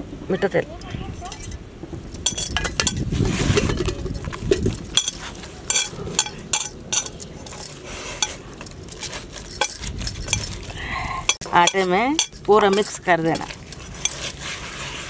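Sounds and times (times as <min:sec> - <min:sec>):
bangles jangling: 0:01.2 - 0:14.4
dough squelching: 0:03.0 - 0:15.0.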